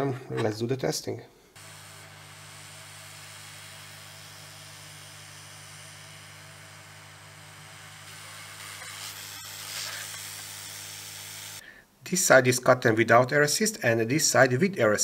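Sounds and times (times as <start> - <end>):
laser cutting hiss: 1.6 - 11.6
low machine hum: 1.6 - 11.6.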